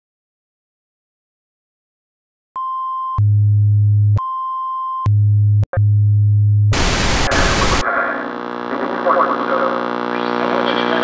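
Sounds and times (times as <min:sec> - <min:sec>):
low test tone buzz: 0:05.1 - 0:11.0
tv static burst: 0:06.7 - 0:11.0.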